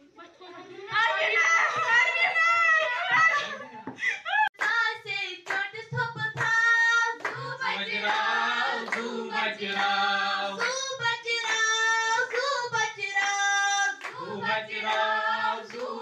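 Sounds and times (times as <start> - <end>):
girls singing together: 0.9 - 3.6, 4.5 - 16.0
hands clapping: 3.1 - 14.2, 14.8 - 15.1, 15.7 - 16.0.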